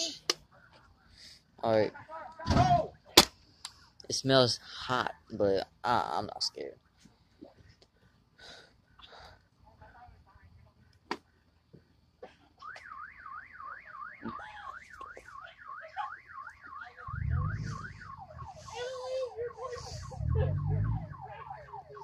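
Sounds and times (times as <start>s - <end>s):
car alarm warbling and chirping: 12.6s - 22.0s
low rumbles: 17.0s - 18.7s, 19.8s - 21.3s.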